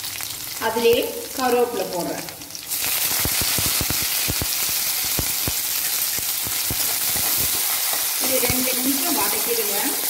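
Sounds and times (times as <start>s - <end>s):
leaves sizzling in hot oil: 0.0s - 10.0s
sharp crackling pops: 2.7s - 9.0s.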